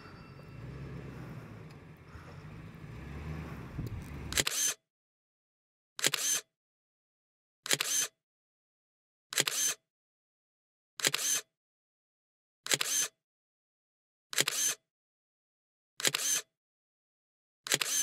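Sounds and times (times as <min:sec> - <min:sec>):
camera shutter double clicks: 0:04.3 - 0:04.8, 0:06.0 - 0:06.5, 0:07.7 - 0:08.1, 0:09.3 - 0:09.8, 0:11.0 - 0:11.5, 0:12.7 - 0:13.1, 0:14.3 - 0:14.8, 0:16.0 - 0:16.5, 0:17.7 - 0:18.0.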